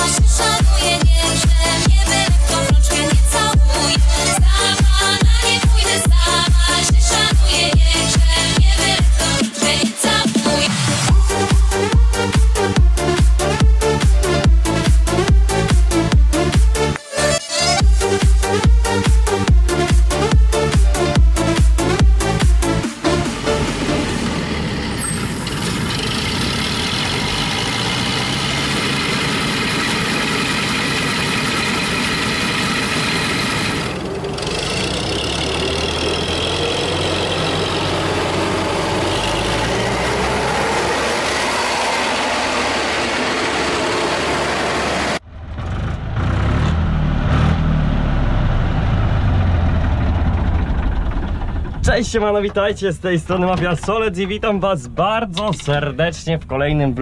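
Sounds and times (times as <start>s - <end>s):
combine harvester running: 21.6s - 54.3s.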